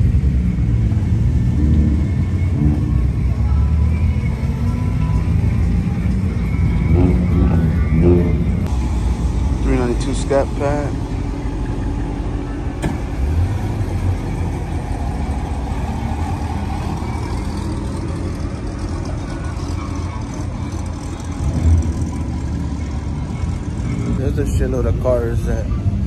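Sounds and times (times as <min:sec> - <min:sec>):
sports cars rolling past: 0:00.0 - 0:26.0.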